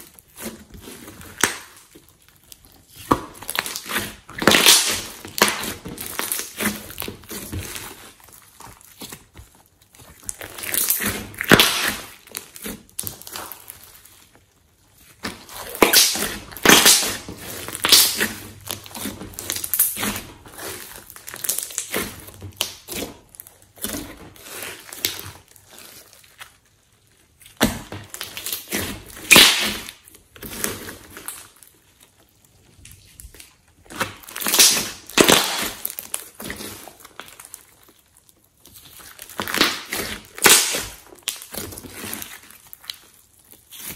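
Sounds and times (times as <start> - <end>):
slime clicking and crackling: 0.0 - 43.9.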